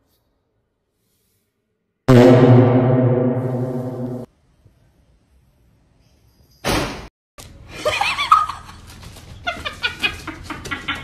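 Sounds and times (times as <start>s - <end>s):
short sharp burst of noise: 2.1s - 4.3s.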